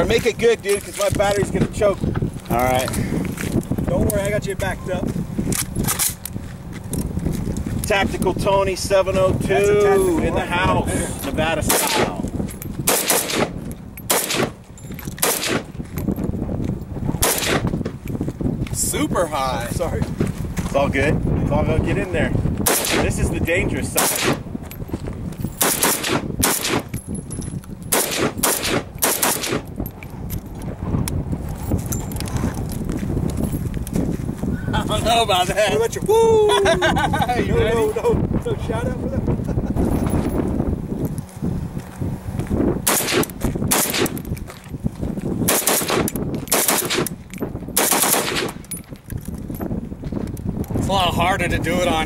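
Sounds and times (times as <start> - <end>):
rifle gunshots: 11.6 - 12.2, 12.8 - 14.6, 15.2 - 15.7, 17.2 - 17.7, 22.6 - 23.1, 23.9 - 24.4, 25.6 - 26.9, 27.9 - 29.7, 42.8 - 44.2, 45.5 - 47.1, 47.8 - 48.6.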